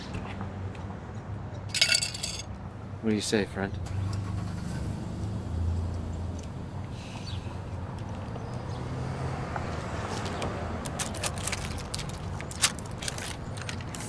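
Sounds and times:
low traffic hum: 0.0 - 14.0
paper bag crinkling: 10.8 - 14.0.

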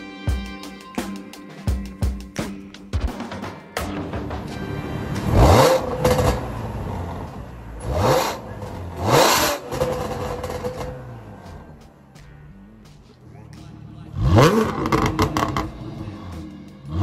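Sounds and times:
car engine idling and revving: 4.0 - 17.0.

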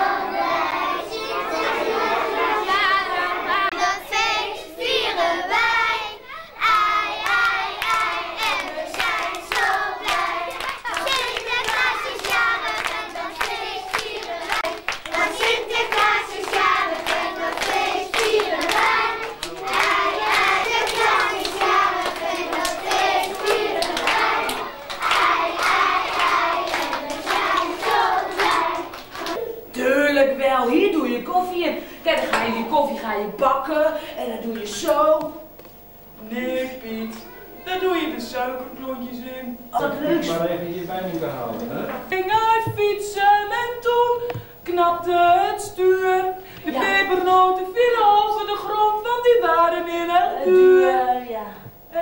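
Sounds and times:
young children singing: 0.0 - 29.6, 42.1 - 51.2
hands clapping: 7.2 - 29.4.

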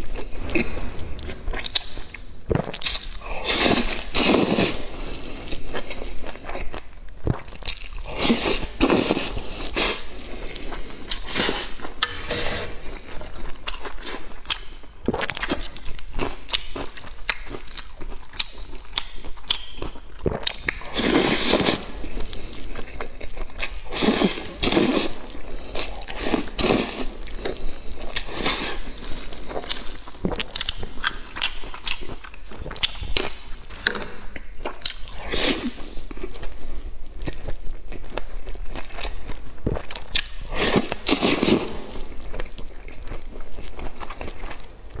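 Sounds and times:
wet chewing clicks: 1.5 - 4.5, 13.6 - 21.0.

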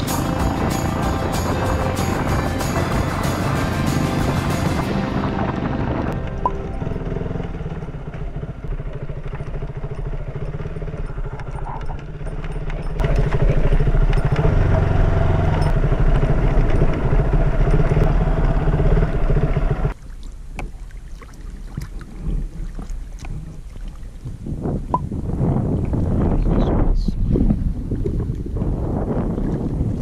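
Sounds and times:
motorcycle engine running: 0.0 - 20.0.

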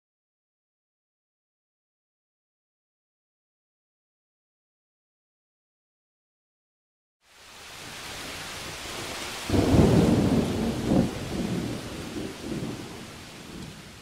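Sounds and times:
rain hiss: 7.2 - 14.0
thunder rumbling: 8.8 - 14.0.

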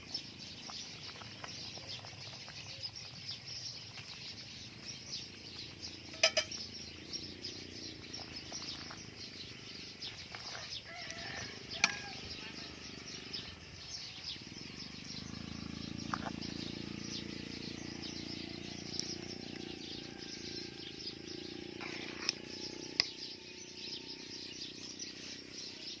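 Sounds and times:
soup bubbling in a pot: 0.0 - 20.1, 21.2 - 25.6
ladle stirring soup: 21.8 - 23.1.

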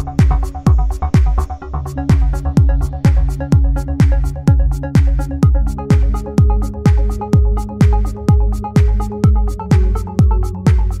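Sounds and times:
electronic dance music: 0.0 - 11.0
kick drum beating: 0.0 - 11.0.

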